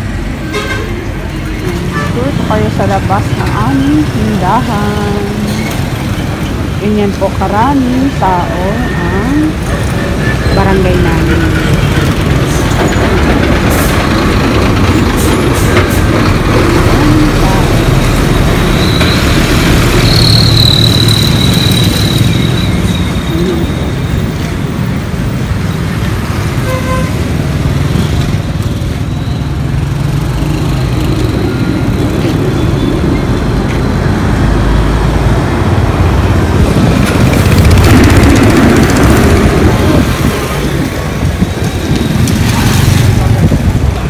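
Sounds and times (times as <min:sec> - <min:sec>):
trucks and motorcycles passing: 0:00.0 - 0:44.0.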